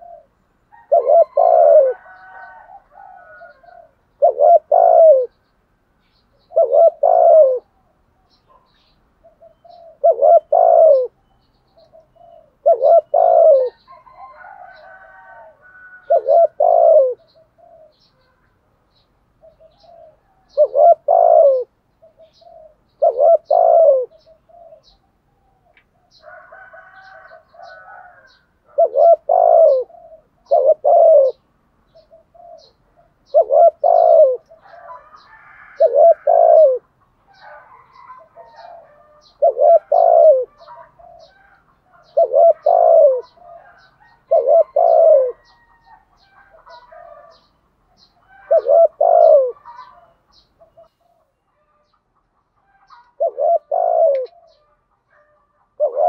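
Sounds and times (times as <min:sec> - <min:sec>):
dove cooing: 0:00.0 - 0:05.4, 0:06.3 - 0:18.5, 0:19.4 - 0:51.9, 0:52.6 - 0:56.0
small birds chirping: 0:00.0 - 0:54.9.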